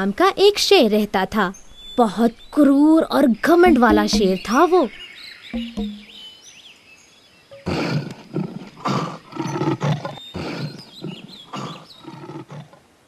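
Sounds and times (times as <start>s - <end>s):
faint bird chirps: 1.4s - 12.2s
lion roaring: 7.6s - 12.8s.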